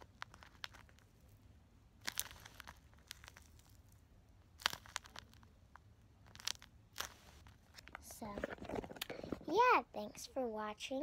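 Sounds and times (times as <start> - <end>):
squishy toy crinkling: 2.0 - 5.5, 6.2 - 9.5.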